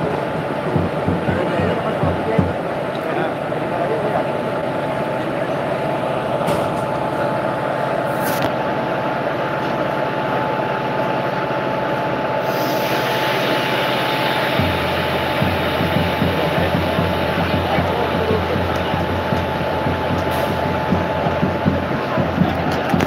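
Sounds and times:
locomotive rolling past: 0.0s - 23.0s
deep hum: 12.4s - 23.0s.

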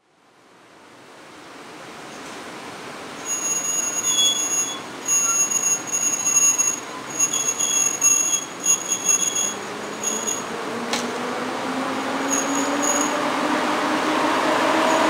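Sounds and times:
high-pitched squeals: 3.2s - 10.6s, 12.0s - 13.5s, 14.2s - 15.0s
electric train pulling away: 3.2s - 15.0s
rising low whine: 9.8s - 15.0s.

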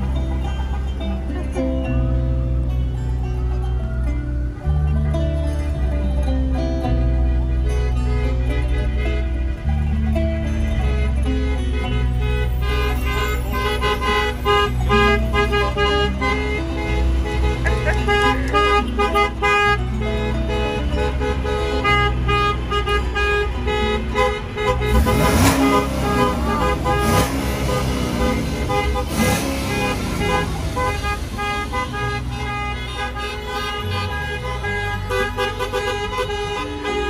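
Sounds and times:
car horns honking: 0.0s - 3.8s, 4.5s - 37.0s
noisy horn blasts with sliding pitch: 10.5s - 37.0s.

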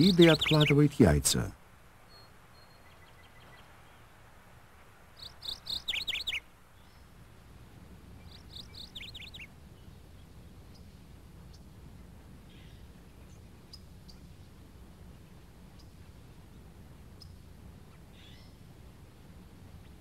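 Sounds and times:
songbird chirping: 0.0s - 7.2s, 8.2s - 20.0s
faint low hum: 6.5s - 20.0s.

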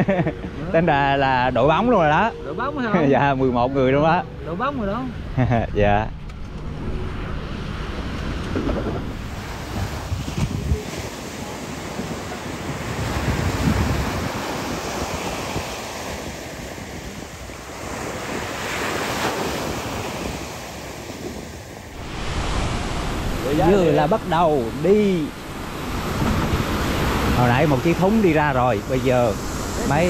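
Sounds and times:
wind on microphone: 0.0s - 30.0s
surf breaking on beach: 7.2s - 30.0s.

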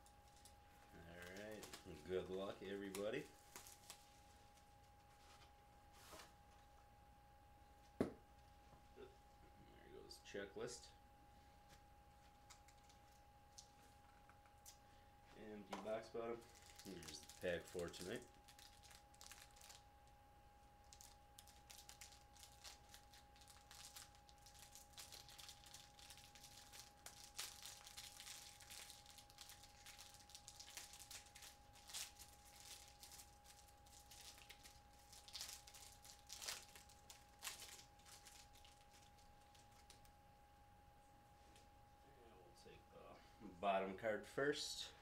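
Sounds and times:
faint steady hum: 0.0s - 45.0s
wrapper crinkling: 0.2s - 4.3s, 16.4s - 19.9s, 20.8s - 40.1s.

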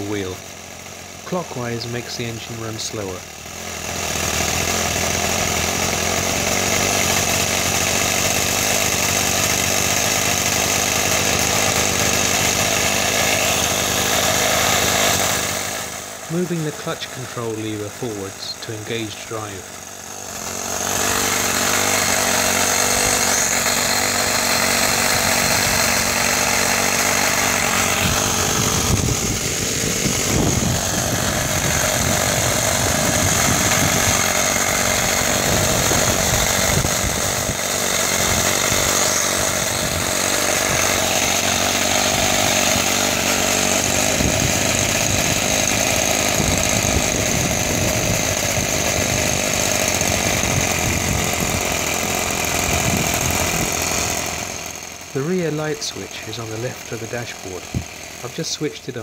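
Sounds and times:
model engine running: 0.0s - 59.0s
high whine of cooling fans: 20.9s - 41.0s.

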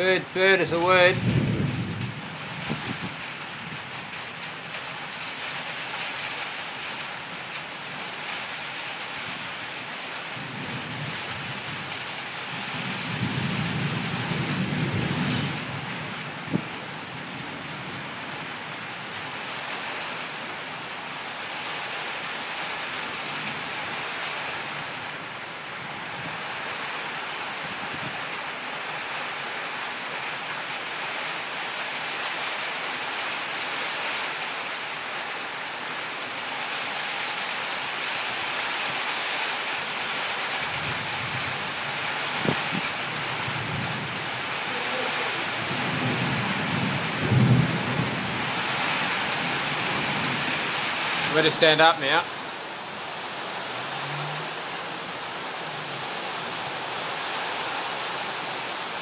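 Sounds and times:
heavy rain: 0.0s - 59.0s
thunder rumble: 1.1s - 3.2s, 12.8s - 16.8s, 43.5s - 51.6s.

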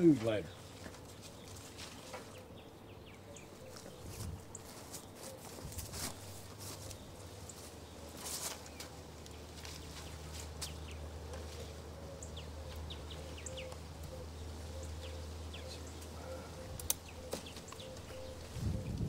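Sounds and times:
sharp clicks: 16.8s - 17.1s.

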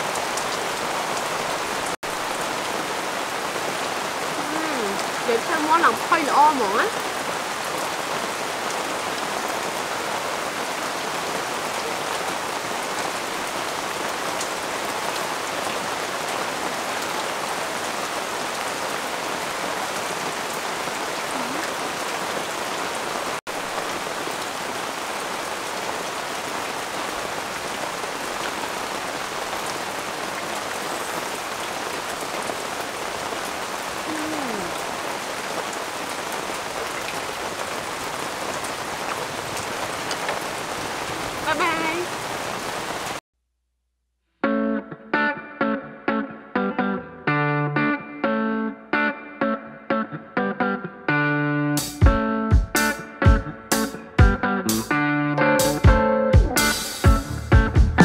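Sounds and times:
steady rain-like hiss: 0.0s - 43.2s, 55.6s - 55.9s, 56.6s - 57.5s.

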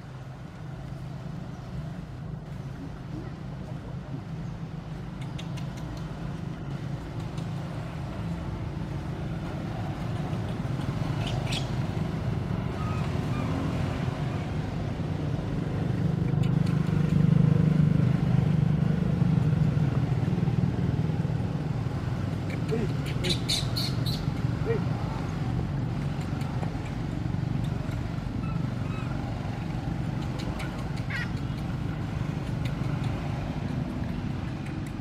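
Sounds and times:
vehicle engine humming: 0.0s - 35.0s.

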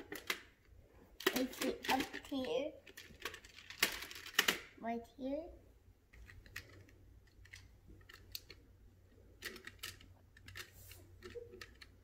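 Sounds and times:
plastic magnetic tiles clicking: 6.2s - 8.6s.

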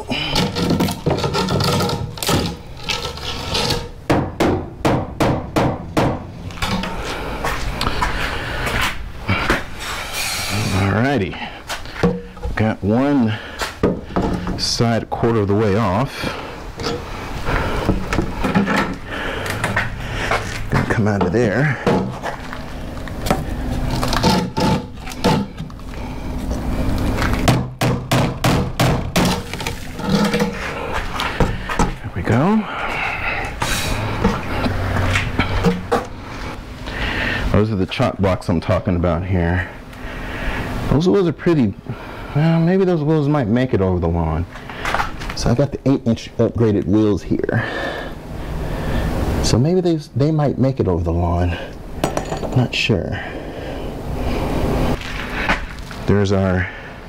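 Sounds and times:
boards and nails creaking: 0.1s - 4.0s, 16.8s - 27.6s, 29.1s - 32.0s
wooden boards knocking: 0.4s - 6.8s, 27.4s - 30.6s.

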